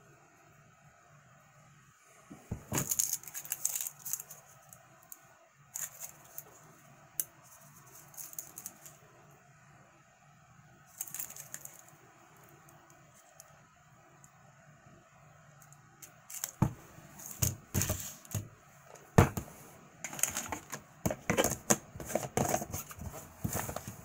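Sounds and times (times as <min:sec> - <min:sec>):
juice box crinkling and clicking: 0:20.1 - 0:23.0.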